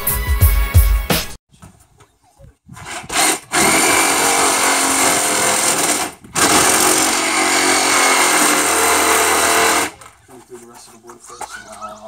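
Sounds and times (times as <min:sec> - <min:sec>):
power tool running: 0:02.8 - 0:10.1.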